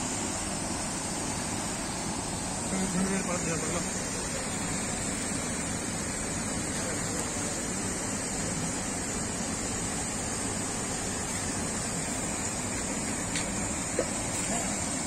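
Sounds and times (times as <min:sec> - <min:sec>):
water rushing from dam outlets: 0:00.0 - 0:15.0.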